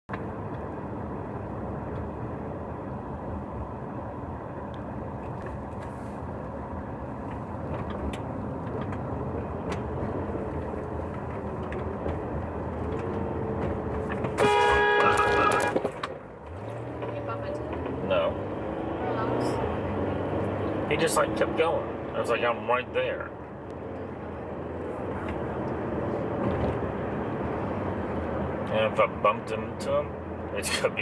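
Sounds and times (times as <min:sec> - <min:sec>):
road and engine noise in car: 0:00.1 - 0:31.0
loud car horn blast: 0:14.4 - 0:16.0.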